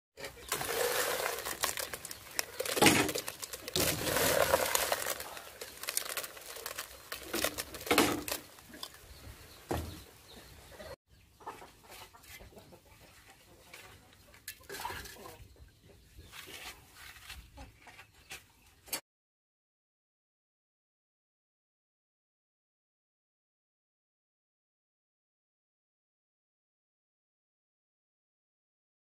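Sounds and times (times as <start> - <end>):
shellfish clattering against metal pot: 0.3 - 9.0.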